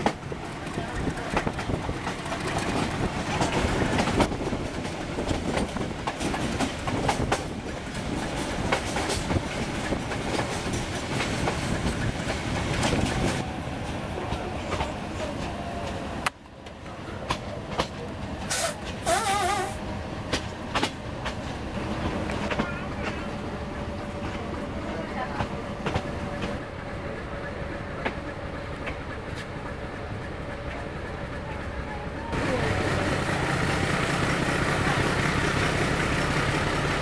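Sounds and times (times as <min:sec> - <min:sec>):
wheels clacking over rail joints: 0:00.0 - 0:26.7
train coach rumble: 0:00.0 - 0:37.0.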